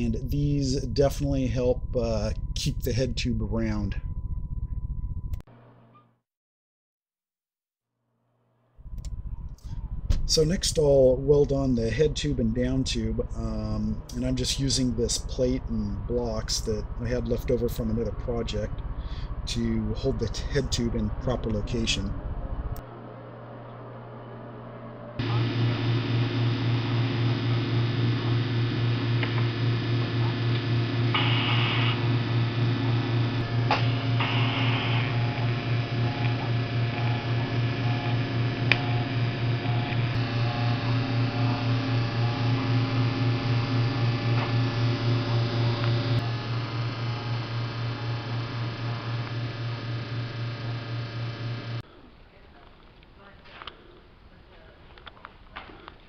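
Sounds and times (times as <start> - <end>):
welding arc buzzing: 25.2 - 51.8.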